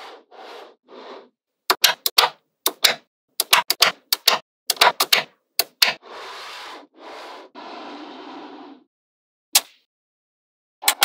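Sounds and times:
magnetic balls clicking together: 1.7s - 6.0s.

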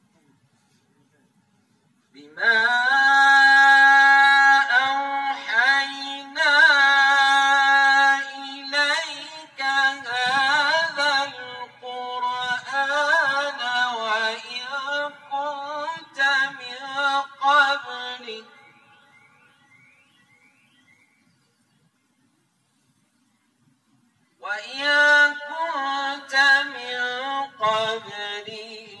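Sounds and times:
man chanting melodically: 2.1s - 18.7s, 24.4s - 29.0s.

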